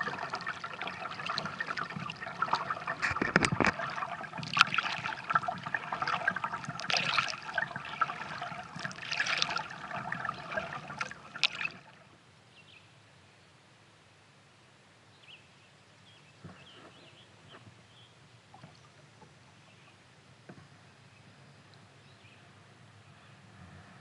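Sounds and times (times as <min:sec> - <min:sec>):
kayak paddle splashing water: 0:00.0 - 0:12.0
water dripping: 0:00.0 - 0:12.0.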